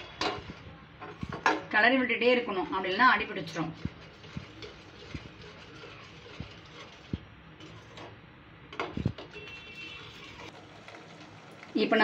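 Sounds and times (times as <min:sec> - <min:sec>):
spoon scraping pot bottom: 0:02.8 - 0:08.2, 0:08.8 - 0:11.0.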